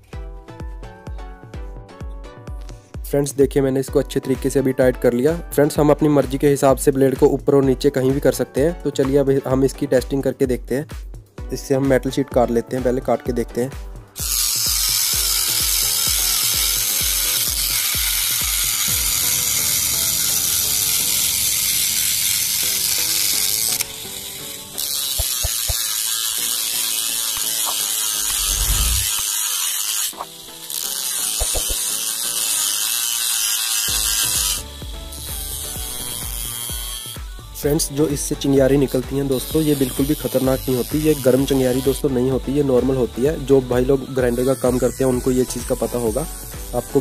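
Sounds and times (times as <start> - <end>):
angle grinder cutting metal: 14.1 - 47.0.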